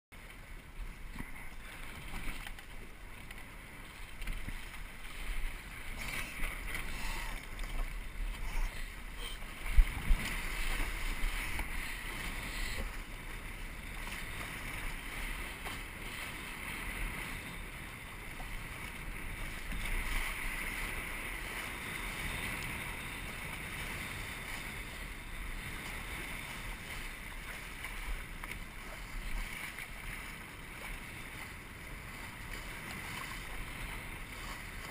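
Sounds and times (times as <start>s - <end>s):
water rushing past a hull: 0.2s - 34.9s
wind buffeting microphone: 4.3s - 15.4s.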